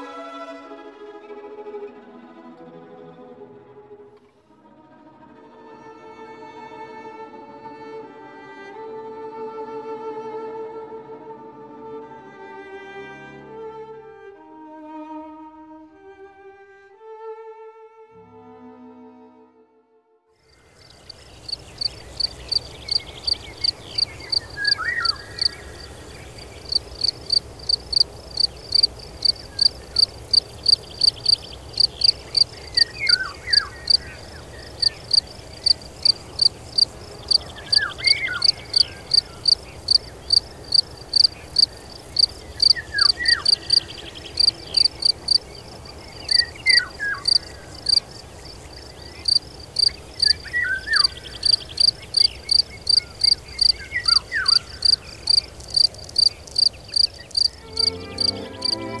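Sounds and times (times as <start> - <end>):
cricket chirping: 20.5 - 59.0
bird falling call: 21.8 - 26.7.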